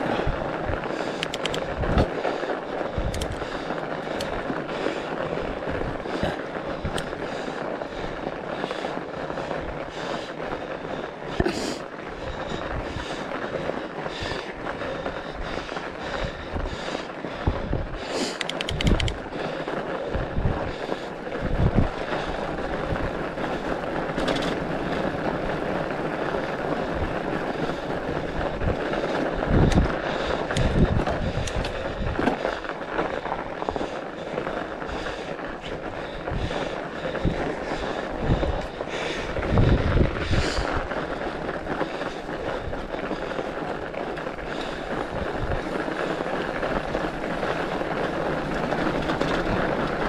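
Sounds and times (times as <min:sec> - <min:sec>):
bike tyres rolling on snow: 0:00.0 - 0:50.0
wind buffeting the microphone: 0:00.0 - 0:50.0
quick clicks: 0:01.2 - 0:01.7, 0:03.0 - 0:03.4, 0:18.2 - 0:19.2.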